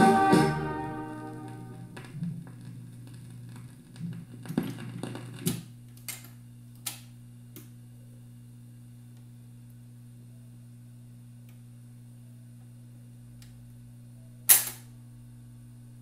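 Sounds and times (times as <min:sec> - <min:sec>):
music from a record: 0:00.0 - 0:03.5
steady low hum: 0:00.0 - 0:16.0.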